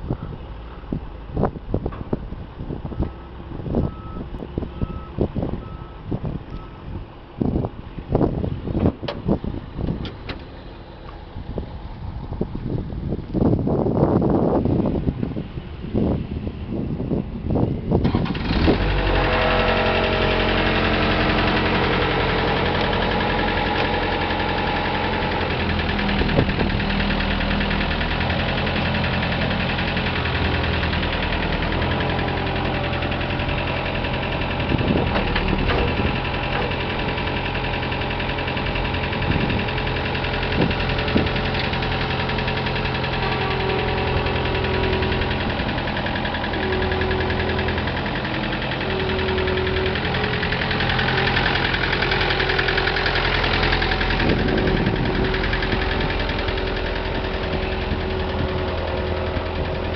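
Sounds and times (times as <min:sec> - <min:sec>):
loader engine running: 0:00.0 - 0:59.9.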